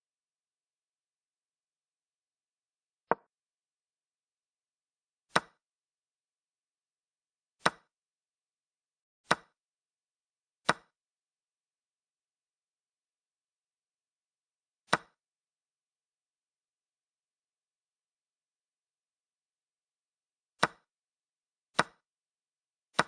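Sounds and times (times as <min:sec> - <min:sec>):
chess piece move clicks: 0:05.3 - 0:05.6, 0:07.6 - 0:08.0, 0:09.2 - 0:09.6, 0:10.6 - 0:11.0, 0:14.9 - 0:15.2, 0:20.6 - 0:20.9, 0:21.8 - 0:22.1.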